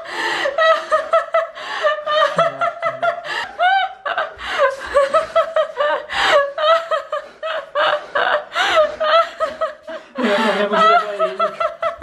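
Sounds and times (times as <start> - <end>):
people laughing: 0.0 - 12.0.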